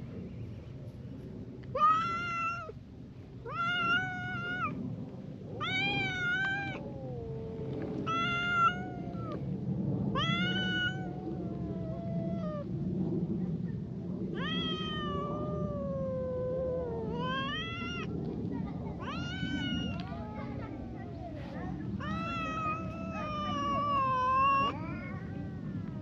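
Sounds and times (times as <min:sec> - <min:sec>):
cats yowling: 0:01.8 - 0:02.8, 0:03.4 - 0:04.8, 0:05.6 - 0:12.8, 0:14.3 - 0:18.2, 0:18.9 - 0:26.0
high drawn-out cat meows: 0:03.5 - 0:04.8, 0:05.6 - 0:06.9, 0:08.0 - 0:09.4, 0:10.1 - 0:12.6, 0:14.4 - 0:18.1, 0:19.0 - 0:20.4, 0:22.0 - 0:26.0.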